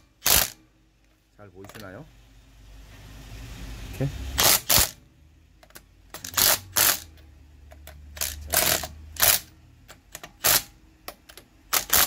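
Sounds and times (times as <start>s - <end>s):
impact wrench hammering: 0.0s - 0.6s.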